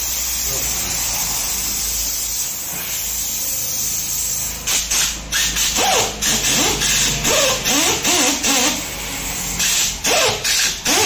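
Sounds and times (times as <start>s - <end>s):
steady air hiss: 0.0s - 7.2s
pneumatic drill bursts: 0.0s - 11.0s.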